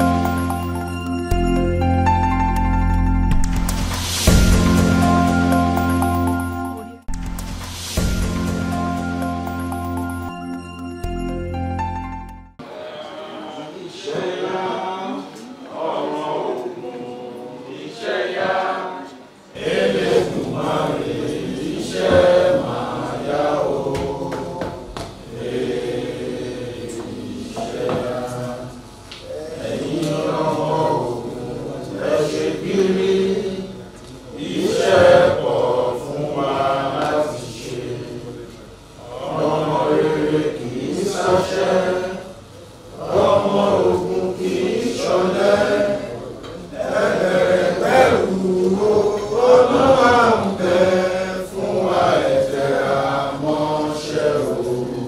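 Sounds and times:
group singing in unison: 0.0s - 0.9s, 12.6s - 55.0s.

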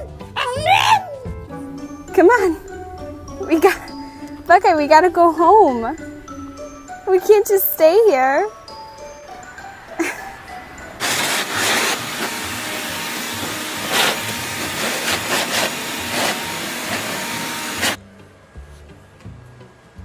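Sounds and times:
leaf blower running: 9.6s - 18.0s.

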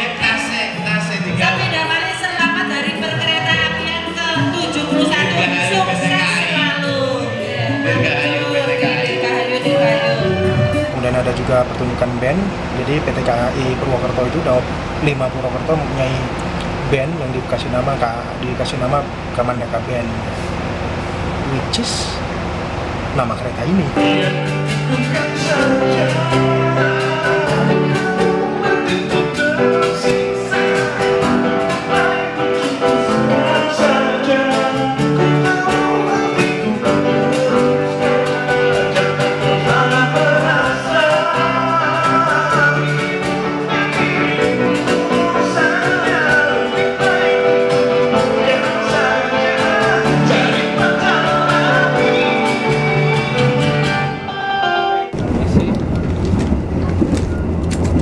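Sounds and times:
cajon drumming: 0.0s - 22.5s, 23.1s - 54.1s, 55.1s - 58.0s
bass guitar: 0.0s - 58.0s
electric guitar: 0.0s - 58.0s
men singing: 4.8s - 11.4s, 24.0s - 54.2s.

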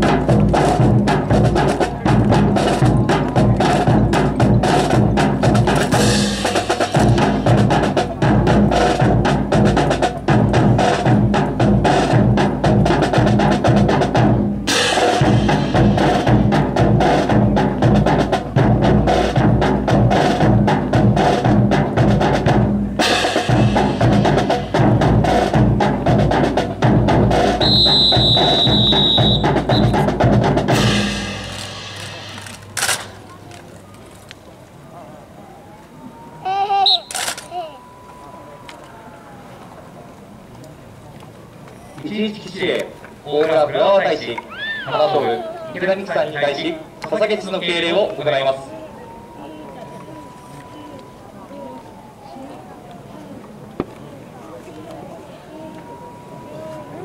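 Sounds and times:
marching drum cadence: 0.0s - 33.6s, 45.8s - 52.2s
high steady tone: 46.8s - 52.6s.

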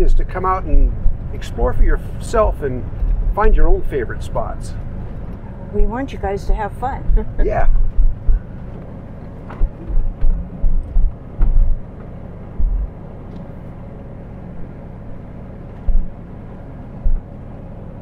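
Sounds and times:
suspension thumps and knocks: 0.0s - 1.8s, 5.2s - 13.0s, 15.8s - 16.2s
engine and road rumble: 0.0s - 18.0s.

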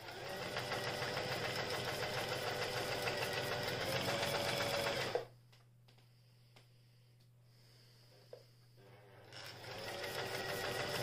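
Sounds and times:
sewing machine stitching fast: 0.0s - 5.3s, 9.2s - 11.0s.

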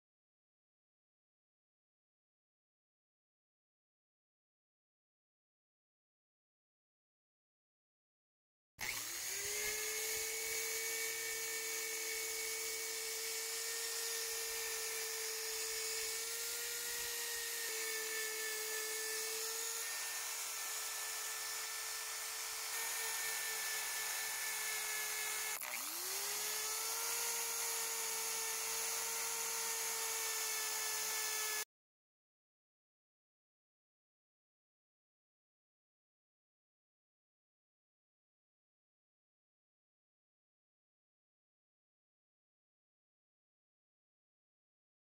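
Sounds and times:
wire brush power tool whining: 8.8s - 31.7s.

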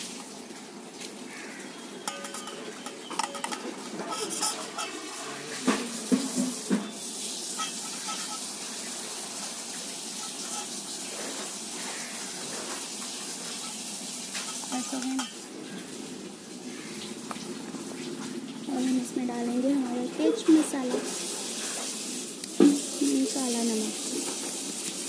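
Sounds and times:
vegetables rustling in bowl: 0.0s - 6.7s, 10.1s - 15.4s
fork clinking against steel bowl: 2.0s - 5.0s, 7.6s - 8.4s, 10.2s - 10.7s, 14.4s - 15.4s.

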